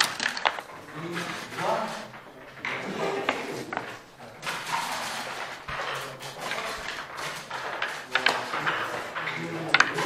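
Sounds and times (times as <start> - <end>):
checkers and dice clicking on board: 0.0 - 10.0
room hubbub: 0.0 - 10.0.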